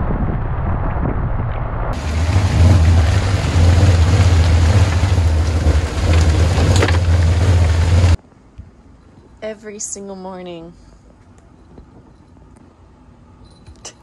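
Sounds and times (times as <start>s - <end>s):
wind buffeting microphone: 0.0s - 8.2s
driving rain hiss: 2.0s - 8.2s.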